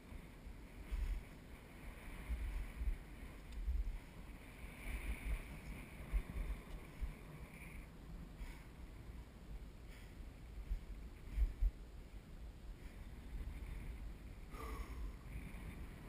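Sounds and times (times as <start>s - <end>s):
hiss of sliding on snow: 0.0s - 8.8s
wind buffeting microphone: 0.0s - 16.0s.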